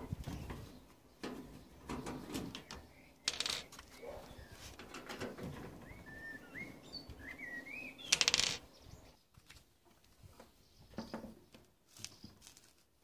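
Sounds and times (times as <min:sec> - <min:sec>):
bird chirping: 0:00.3 - 0:04.7, 0:05.7 - 0:09.3.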